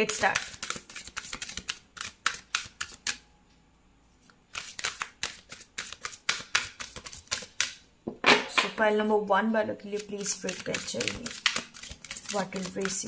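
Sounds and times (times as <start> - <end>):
cards being shuffled: 0.0 - 3.2, 4.5 - 7.8, 9.9 - 13.0.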